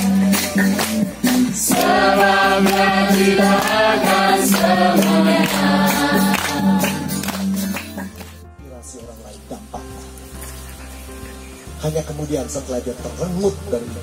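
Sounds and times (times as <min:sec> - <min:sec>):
crowd singing worship song: 0:00.0 - 0:07.7
live band with bass guitar: 0:00.0 - 0:08.5.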